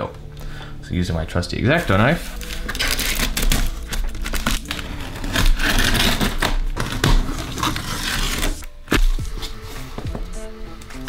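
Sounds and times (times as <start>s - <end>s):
knife slitting packing tape: 2.4s - 9.2s.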